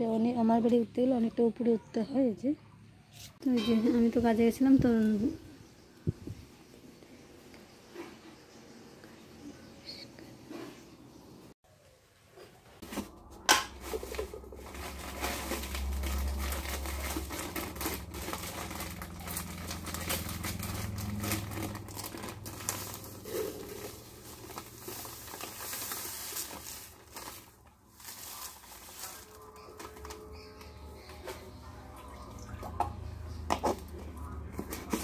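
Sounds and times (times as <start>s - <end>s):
plastic packaging crinkling: 13.1s - 31.2s
low rumble: 14.4s - 25.4s.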